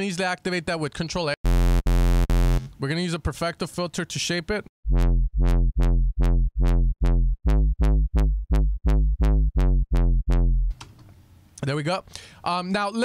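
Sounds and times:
repeated square-wave synth bass: 0:01.4 - 0:02.7, 0:04.8 - 0:10.7.

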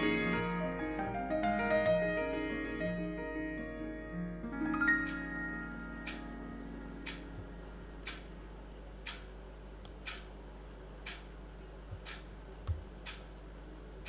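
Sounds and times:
faint low room hum: 0:00.0 - 0:14.0
wall clock ticking: 0:06.0 - 0:06.2, 0:07.0 - 0:07.3, 0:08.0 - 0:08.3, 0:09.0 - 0:09.3, 0:10.0 - 0:10.4, 0:11.0 - 0:11.3, 0:12.0 - 0:13.3.

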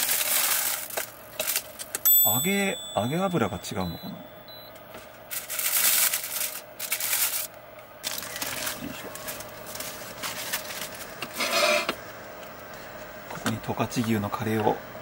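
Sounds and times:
packaging rustling: 0:00.0 - 0:01.9, 0:05.0 - 0:11.4.

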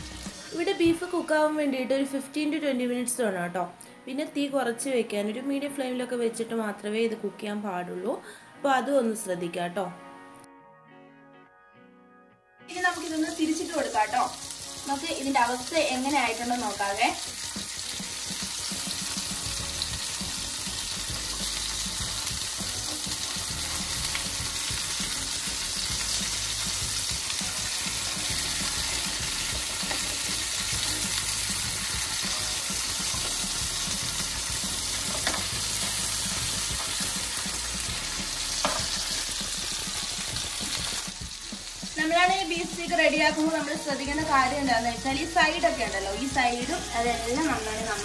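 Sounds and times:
steaks sizzling in a pan: 0:00.0 - 0:00.6, 0:12.8 - 0:48.0.

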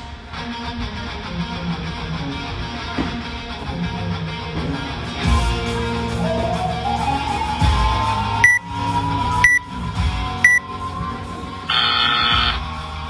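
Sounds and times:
short high timer beeps: 0:08.4 - 0:08.6, 0:09.4 - 0:09.6, 0:10.4 - 0:10.6.

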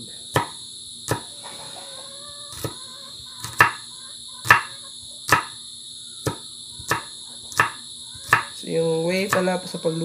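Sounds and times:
high drone of insects: 0:00.0 - 0:10.0
knife chopping on wooden board: 0:00.3 - 0:01.3, 0:02.5 - 0:02.8, 0:03.4 - 0:03.8, 0:04.4 - 0:04.7, 0:05.3 - 0:05.6, 0:06.2 - 0:08.6.

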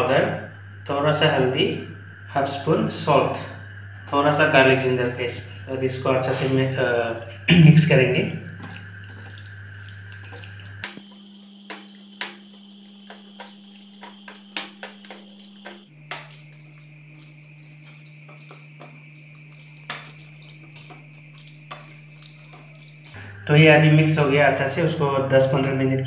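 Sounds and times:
hand squelching raw meat: 0:08.4 - 0:23.2.

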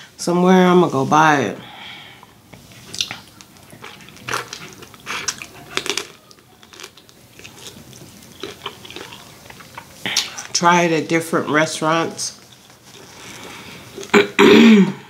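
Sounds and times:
close chewing and lip-smacking: 0:02.2 - 0:10.6.

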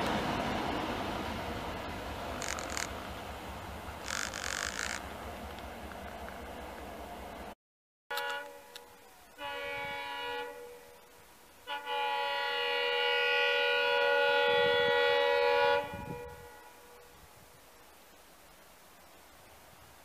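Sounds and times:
locomotive horn blasts: 0:08.1 - 0:17.3.

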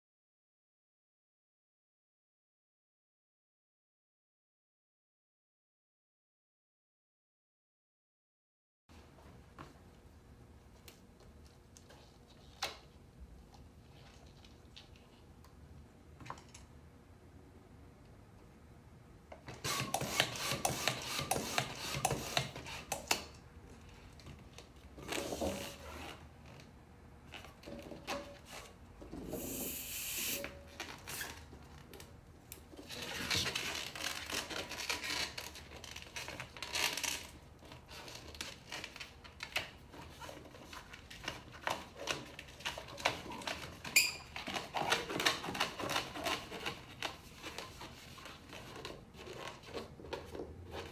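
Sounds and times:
balloon pump strokes: 0:19.6 - 0:23.1, 0:29.2 - 0:31.3.

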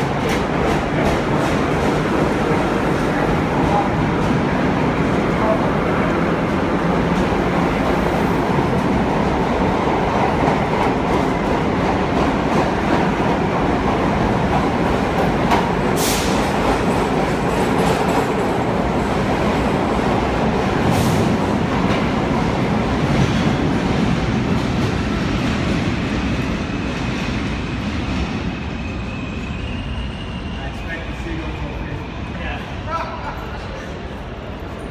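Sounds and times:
clickety-clack over rail joints: 0:00.0 - 0:04.5, 0:08.6 - 0:18.8, 0:20.7 - 0:26.5
train wheels rumbling on rail: 0:00.0 - 0:34.9.

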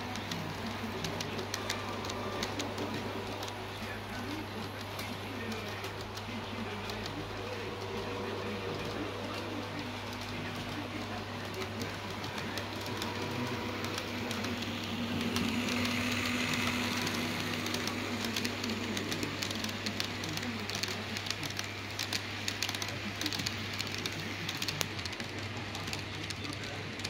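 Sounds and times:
model train motor whine: 0:00.0 - 0:25.0
wheels clicking on track: 0:00.0 - 0:27.0.

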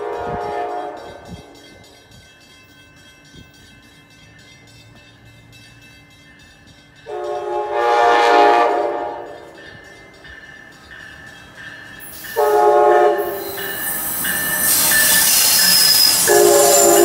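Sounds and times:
train horn blast: 0:00.0 - 0:01.6, 0:07.1 - 0:09.5, 0:12.4 - 0:13.8, 0:15.8 - 0:17.0.

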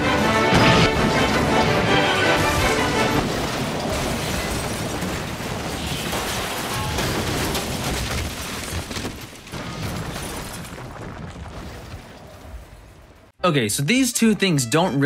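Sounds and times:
music: 0:00.0 - 0:03.2, 0:13.4 - 0:15.0.

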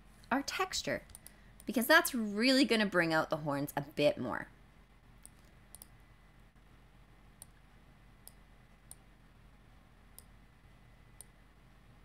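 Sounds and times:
faint computer mouse clicks: 0:01.0 - 0:01.7, 0:05.2 - 0:06.0, 0:08.2 - 0:09.1, 0:10.1 - 0:10.4, 0:11.2 - 0:11.4.

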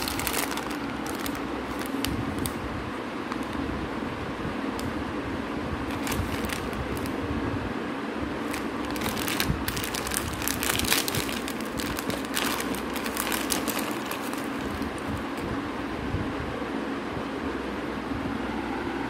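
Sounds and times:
plastic bag crinkling: 0:00.0 - 0:02.6, 0:03.3 - 0:03.6, 0:05.9 - 0:07.2, 0:08.4 - 0:15.4
low background hum: 0:00.0 - 0:19.0.

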